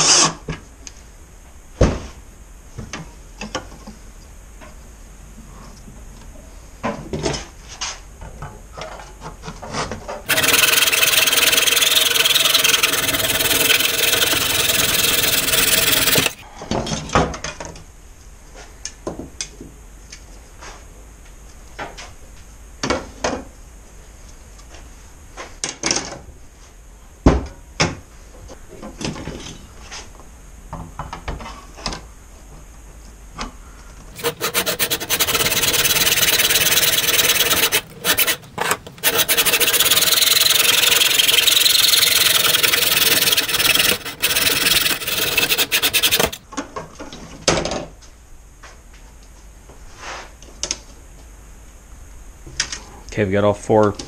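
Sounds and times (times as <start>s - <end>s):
hand saw sawing wood: 10.3s - 16.4s, 34.2s - 46.4s.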